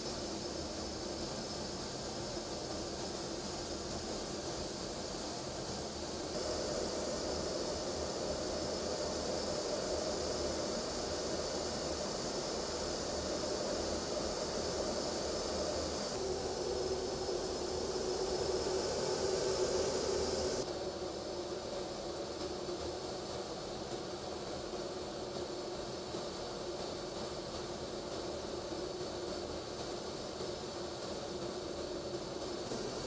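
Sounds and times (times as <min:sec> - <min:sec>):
fighter jet engines running: 0:06.4 - 0:20.7.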